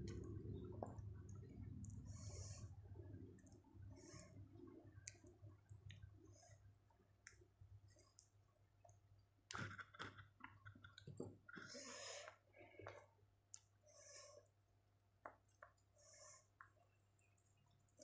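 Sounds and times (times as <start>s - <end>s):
mouth chewing clicks and smacks: 4.9s - 6.1s.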